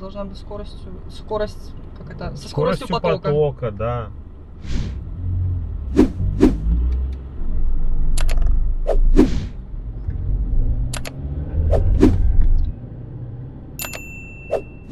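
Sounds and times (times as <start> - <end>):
car road and engine rumble: 0.0 - 14.9
short ringing tone: 13.8 - 14.9.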